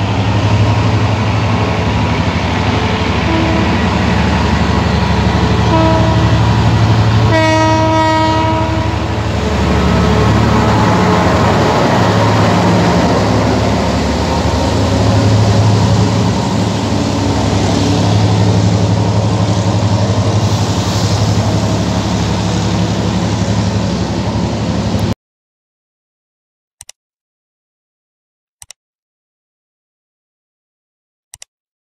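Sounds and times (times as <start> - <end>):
diesel train engine running: 0.0 - 25.2
train wheels rolling: 8.7 - 25.1.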